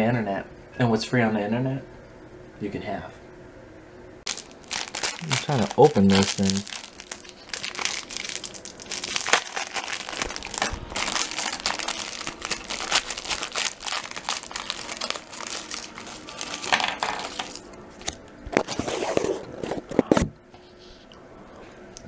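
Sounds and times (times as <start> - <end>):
plastic wrapper crinkling: 4.3 - 18.8.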